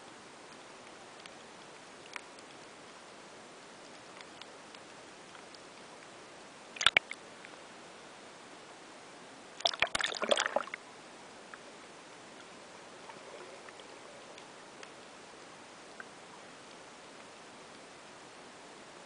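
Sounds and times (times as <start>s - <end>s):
faint underwater hiss: 0.0s - 19.0s
water splashing: 6.8s - 7.2s, 9.6s - 10.8s.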